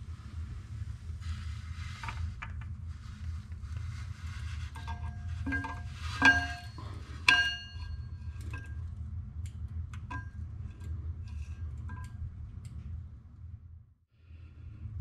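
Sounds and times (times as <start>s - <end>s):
steady low hum: 0.0s - 15.0s
metal clutch plates clinking: 4.9s - 8.9s.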